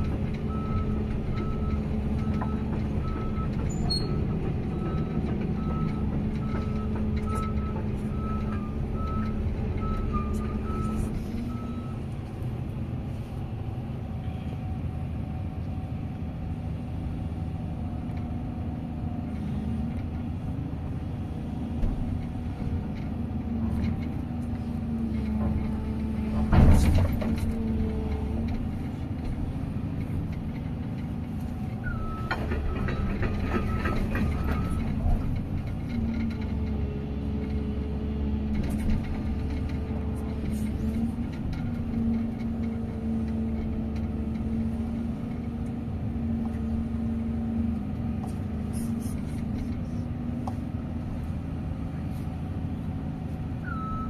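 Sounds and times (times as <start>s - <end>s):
diesel engine droning: 0.0s - 54.0s
reversing alarm beeping: 0.5s - 12.0s, 31.9s - 34.9s, 53.7s - 54.0s.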